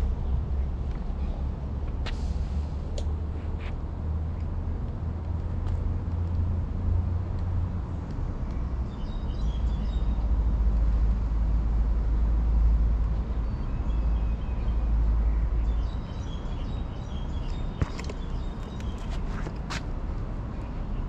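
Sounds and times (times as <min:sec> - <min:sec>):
low outdoor rumble: 0:00.0 - 0:15.8
small birds chirping: 0:08.5 - 0:10.4, 0:13.3 - 0:19.6.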